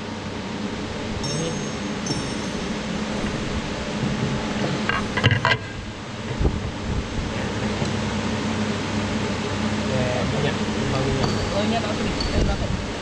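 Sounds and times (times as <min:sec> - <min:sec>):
workshop hum: 0:00.0 - 0:13.0
sharp metal clinks: 0:01.2 - 0:03.6, 0:11.2 - 0:12.4.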